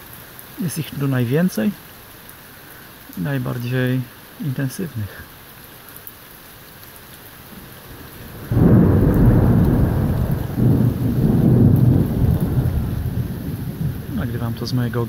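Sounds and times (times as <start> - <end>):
rain falling: 0.0 - 15.0
thunder rumbling: 7.8 - 15.0.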